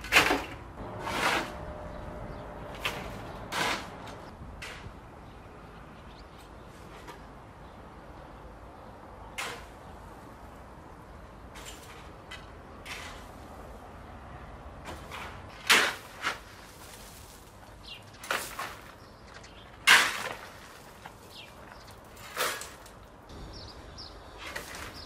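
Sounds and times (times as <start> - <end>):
shovel scraping gravel: 0.0 - 4.8, 12.8 - 13.4, 14.9 - 19.0, 19.8 - 23.0, 24.4 - 25.0.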